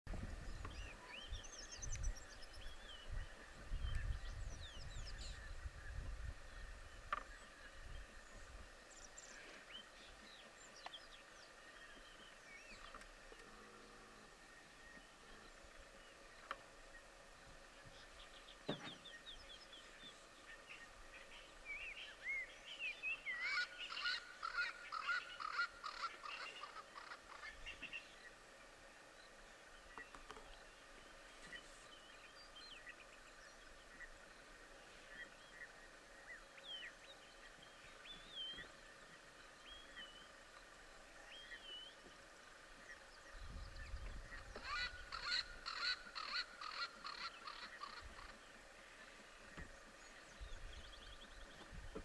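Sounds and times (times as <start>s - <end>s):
wind rumble on microphone: 0.1s - 9.1s, 43.1s - 45.7s, 49.6s - 52.0s
songbirds singing: 0.1s - 52.0s.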